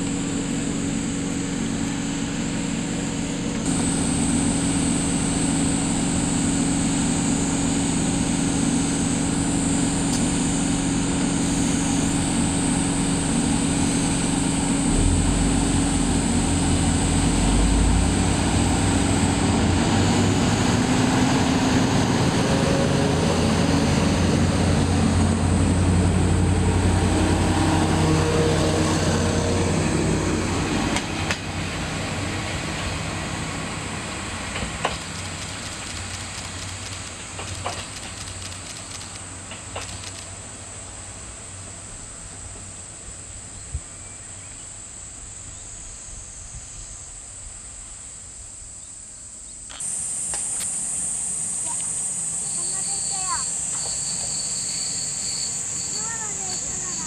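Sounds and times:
deep rumble: 0.0s - 21.4s
diesel engine drone: 0.0s - 43.5s, 49.7s - 57.0s.

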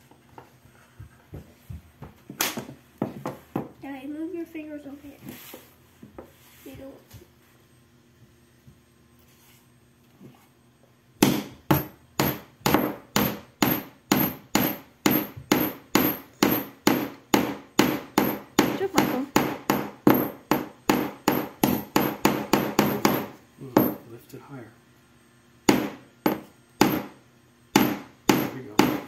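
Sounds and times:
hammer driving nail into wood: 11.2s - 23.4s, 25.7s - 29.0s.

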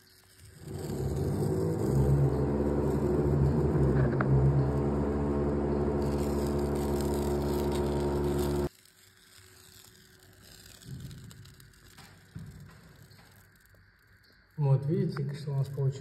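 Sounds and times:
steady machine hum: 0.6s - 8.7s.

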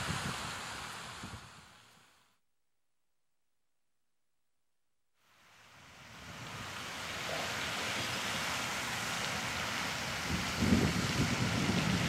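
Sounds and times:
wind rumble on microphone: 0.0s - 1.8s, 6.0s - 8.3s, 9.6s - 12.0s
fountain spray hissing: 0.0s - 2.0s, 5.3s - 12.0s.

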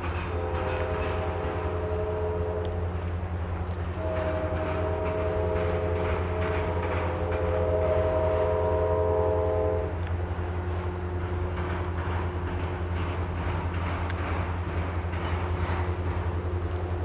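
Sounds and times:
locomotive air horn blasts: 0.0s - 11.6s
freight train rumbling past: 0.0s - 17.0s.

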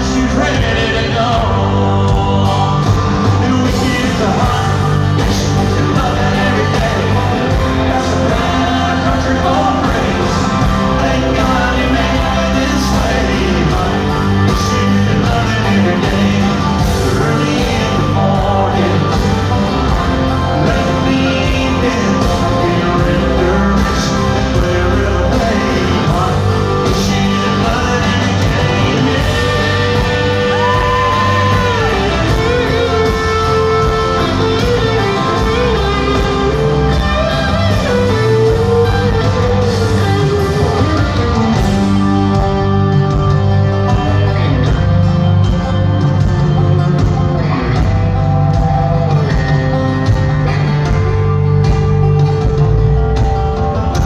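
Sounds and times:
person singing: 0.0s - 42.8s
live country-rock band: 0.0s - 54.0s.

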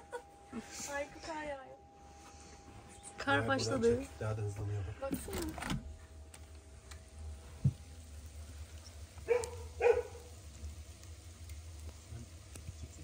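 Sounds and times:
dog barking: 9.2s - 10.3s.

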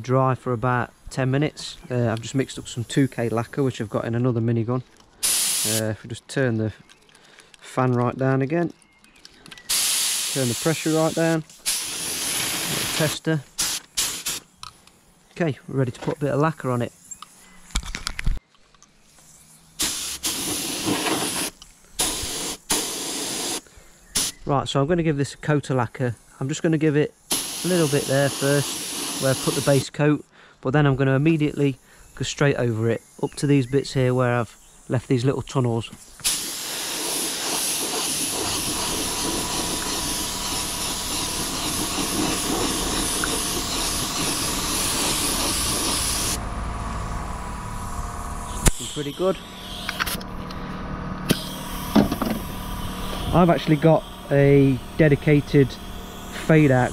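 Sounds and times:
spray gun hissing blasts: 5.2s - 5.9s, 9.7s - 14.5s, 19.2s - 24.4s, 26.0s - 30.0s, 36.1s - 49.8s, 51.3s - 56.9s.

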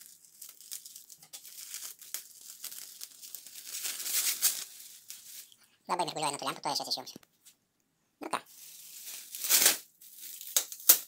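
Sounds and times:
plastic film peeling and crinkling: 0.0s - 5.6s, 8.5s - 11.0s.

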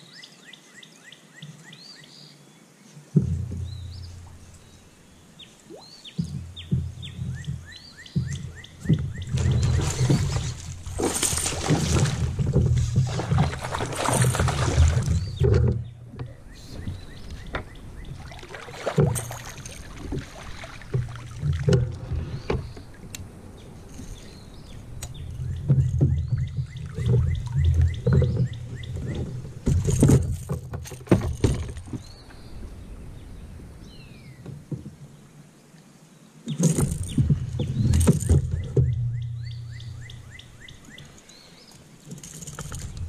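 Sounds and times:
knocks and clunks: 3.2s - 4.4s, 6.1s - 23.2s, 25.0s - 32.4s, 36.5s - 41.1s
gear banging against kayak: 3.2s - 4.8s, 6.0s - 32.5s, 36.5s - 43.0s
water splashing: 5.5s - 32.4s.

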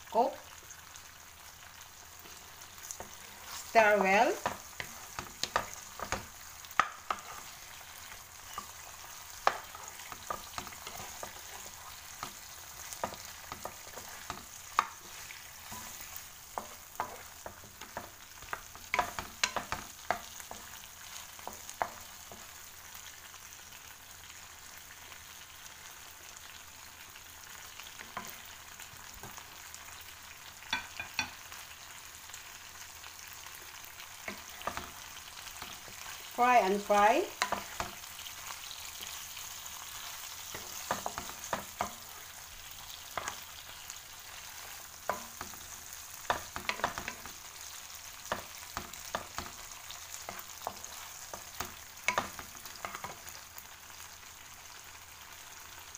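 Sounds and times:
prawns sizzling in a pan: 0.0s - 55.9s
wooden spatula tapping and scraping pan: 2.2s - 22.5s, 28.0s - 28.5s, 30.7s - 31.4s, 34.2s - 39.2s, 39.9s - 47.4s, 48.2s - 53.4s.

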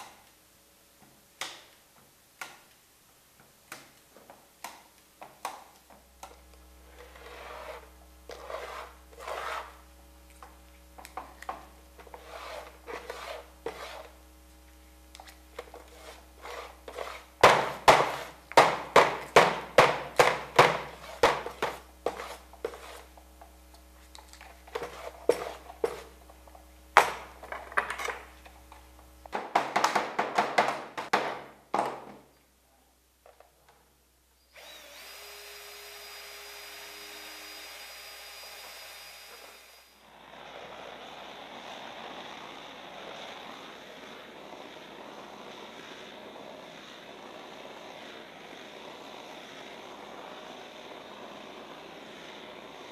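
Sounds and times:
steady low hum: 5.9s - 29.4s.

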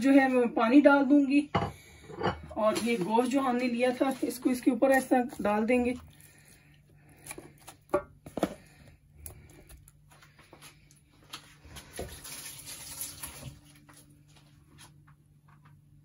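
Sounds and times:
water pouring into pot: 12.0s - 13.7s.

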